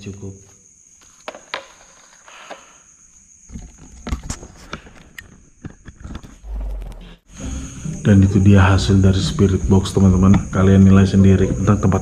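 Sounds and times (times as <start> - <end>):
camera handling knocks and rubs: 1.1 - 2.1.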